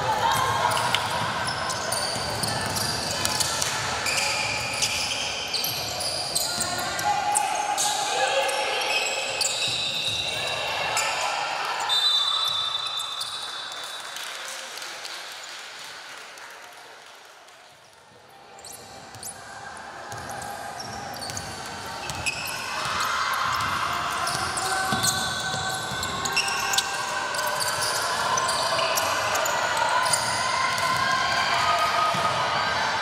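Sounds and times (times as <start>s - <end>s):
sneakers squeaking: 0.3s - 11.2s, 18.6s - 19.4s, 20.1s - 31.0s.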